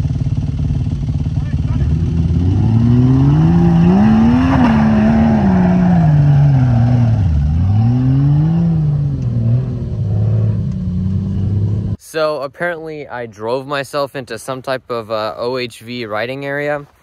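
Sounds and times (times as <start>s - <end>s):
engine revving: 0.0s - 12.0s.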